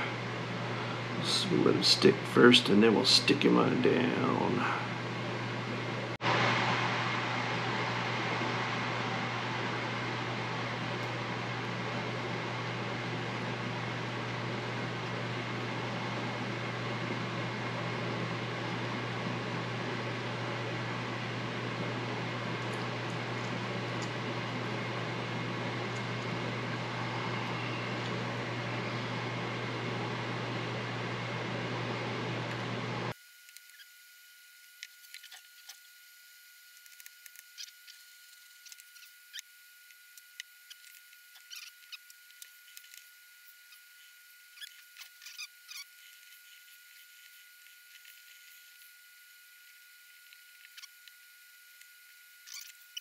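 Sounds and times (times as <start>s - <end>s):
low hum: 0.0s - 33.2s
fan whirring: 0.0s - 53.0s.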